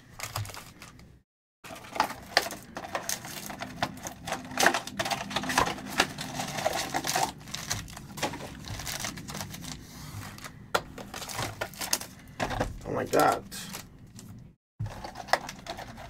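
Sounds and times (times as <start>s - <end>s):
card packs clicking and tapping: 0.0s - 1.1s, 1.7s - 16.0s
foil packs crinkling: 0.0s - 16.0s.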